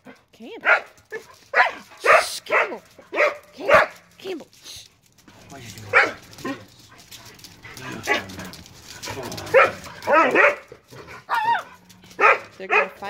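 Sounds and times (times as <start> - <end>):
dogs whining and yelping: 5.9 - 13.0.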